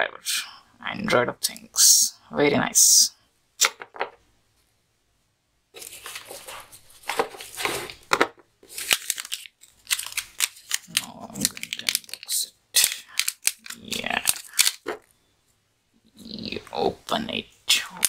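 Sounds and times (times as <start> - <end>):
plastic bag crinkling: 5.8 - 15.1.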